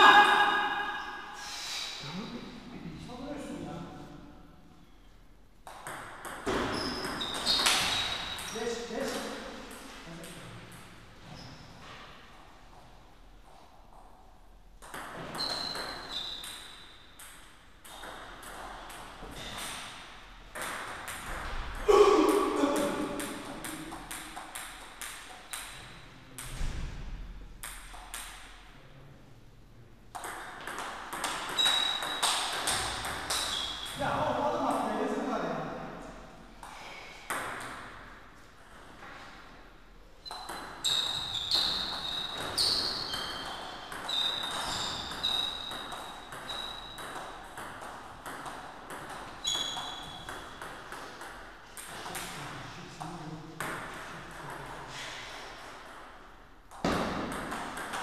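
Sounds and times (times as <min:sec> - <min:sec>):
table tennis ball bouncing: 0:00.0 - 0:01.3, 0:05.6 - 0:11.0, 0:14.8 - 0:26.7, 0:27.6 - 0:28.7, 0:30.1 - 0:34.2, 0:36.6 - 0:39.0, 0:40.2 - 0:52.4, 0:53.6 - 0:54.7, 0:55.6 - 0:58.0
short high-pitched squeaks: 0:06.7 - 0:08.6, 0:15.3 - 0:16.4, 0:31.6 - 0:32.4, 0:40.2 - 0:47.0, 0:49.4 - 0:50.3
ball clicking off bats and table: 0:30.1 - 0:34.0, 0:56.7 - 0:58.0.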